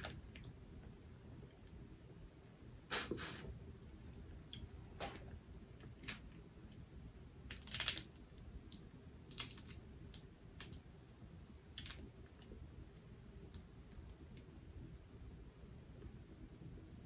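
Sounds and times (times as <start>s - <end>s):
shell cracking and peeling: 7.5s - 10.8s, 11.8s - 12.1s.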